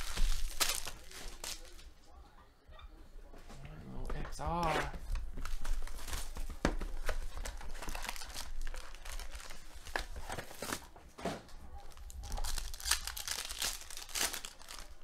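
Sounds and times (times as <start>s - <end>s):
foil wrappers crinkling and tearing: 0.0s - 1.8s, 5.1s - 10.9s, 11.8s - 15.0s.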